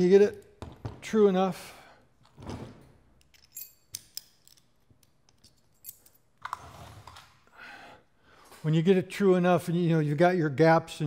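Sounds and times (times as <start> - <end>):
metal gears clicking and clinking: 3.2 - 6.3.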